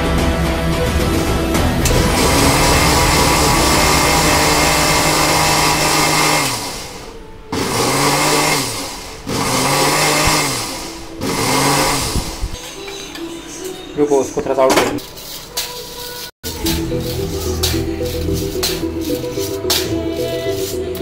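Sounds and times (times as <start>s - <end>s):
mixer grinder motor running: 1.8s - 12.6s.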